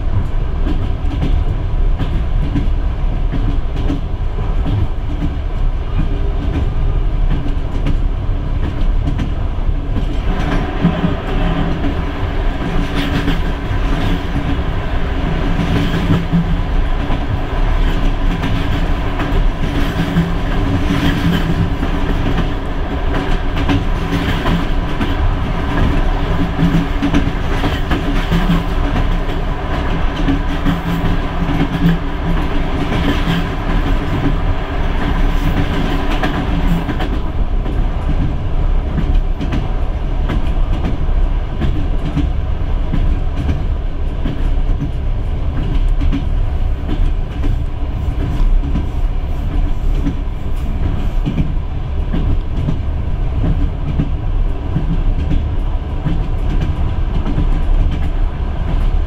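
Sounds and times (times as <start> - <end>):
passing freight train rushing: 0.0 - 59.0
train carriage rumble: 0.0 - 59.0.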